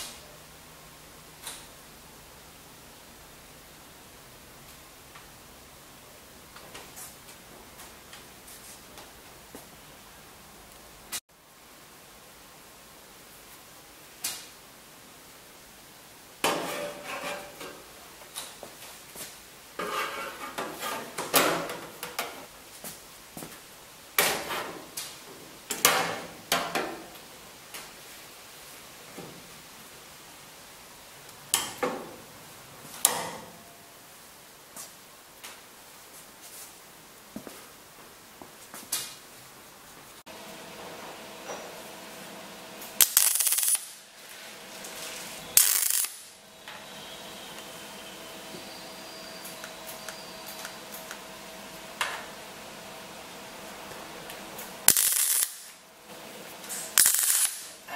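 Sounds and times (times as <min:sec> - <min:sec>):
welding arc crackling: 0:42.8 - 0:44.1, 0:44.7 - 0:48.4, 0:54.3 - 0:55.8, 0:56.4 - 0:57.9.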